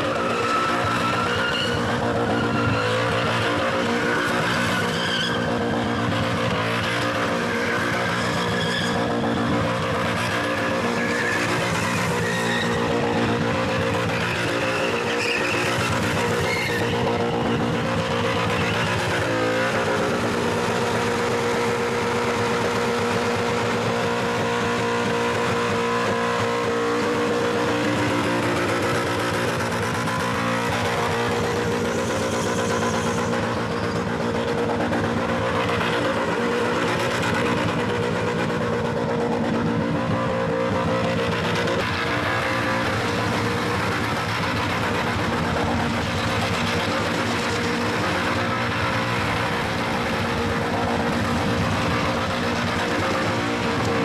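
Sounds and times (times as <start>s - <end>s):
car engine at high revs: 0.0s - 54.0s
tyres squealing: 14.0s - 17.6s.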